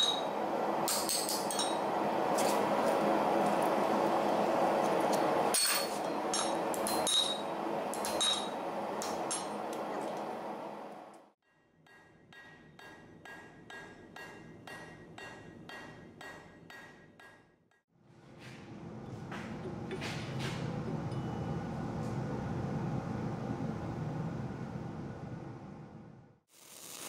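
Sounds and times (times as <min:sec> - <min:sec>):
hammer striking steel on anvil: 0:11.5 - 0:17.6.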